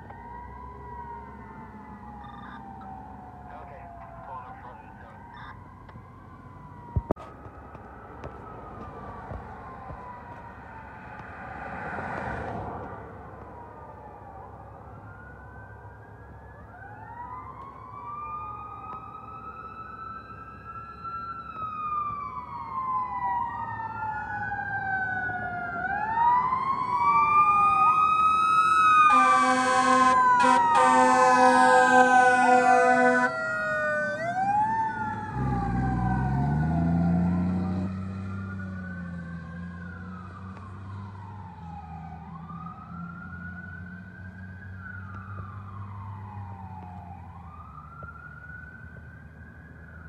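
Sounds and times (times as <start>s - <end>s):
sirens wailing: 0.0s - 50.0s
air horn blasts: 29.1s - 33.3s.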